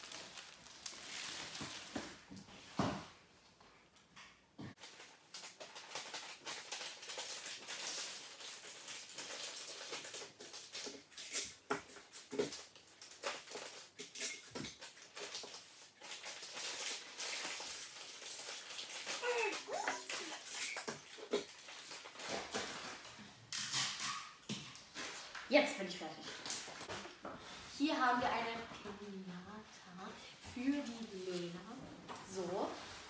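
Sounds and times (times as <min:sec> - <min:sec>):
paper napkins rustling: 0:00.0 - 0:02.3.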